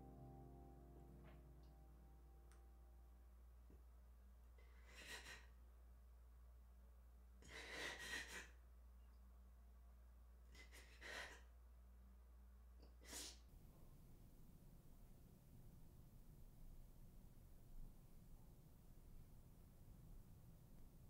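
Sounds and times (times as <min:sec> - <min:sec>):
low hum: 0:00.0 - 0:04.6.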